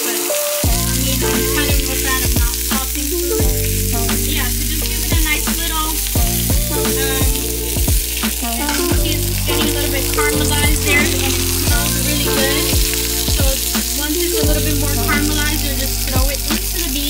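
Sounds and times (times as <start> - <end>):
onions sizzling in a frying pan: 0.0 - 1.2
background music with beat: 0.0 - 17.0.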